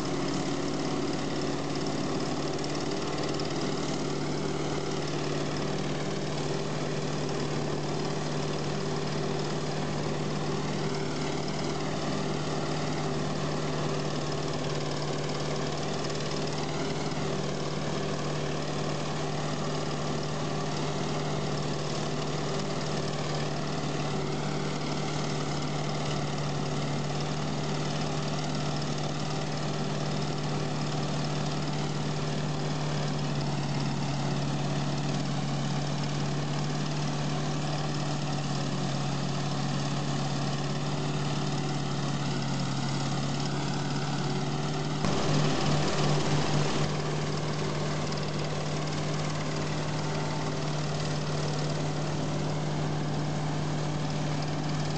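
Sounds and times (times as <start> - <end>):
forage harvester machinery drone: 0.0 - 54.9
rapid pulsing: 45.1 - 47.0.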